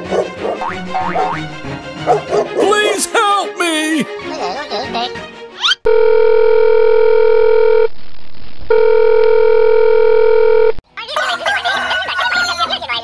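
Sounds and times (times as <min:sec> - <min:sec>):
electronic telephone tone: 0:05.9 - 0:07.9, 0:08.7 - 0:10.8.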